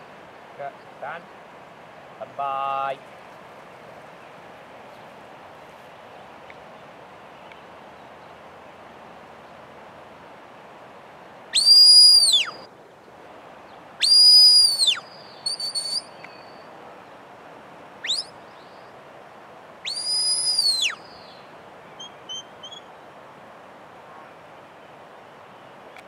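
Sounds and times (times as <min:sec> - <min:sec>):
background hiss: 0:00.0 - 0:26.0
long high whistles: 0:11.5 - 0:12.7, 0:14.0 - 0:16.7, 0:18.0 - 0:18.4, 0:19.8 - 0:21.4
short whistle toots: 0:11.6 - 0:12.6, 0:14.0 - 0:16.4, 0:18.0 - 0:18.3, 0:19.9 - 0:21.0.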